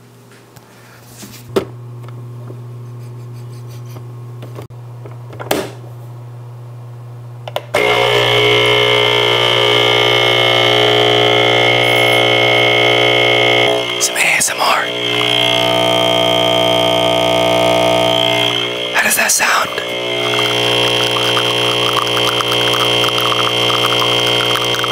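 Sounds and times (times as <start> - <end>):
faint steady hum: 5.9 - 24.9
coffee maker pump buzzing: 7.5 - 24.9.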